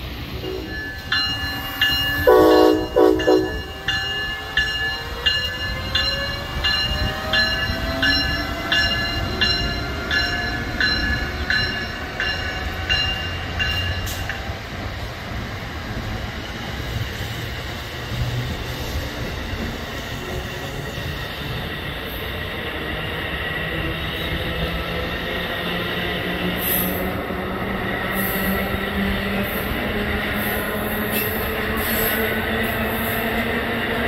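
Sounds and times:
train coaches rumbling past: 0.0s - 34.0s
locomotive bell ringing: 0.4s - 14.5s
train horn blast: 2.2s - 3.7s.

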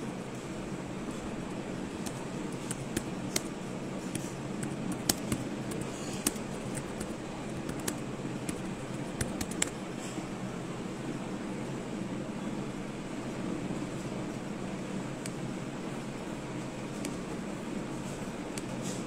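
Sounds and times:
low room hum: 0.0s - 19.0s
sharp clicks and taps: 4.1s - 9.8s.

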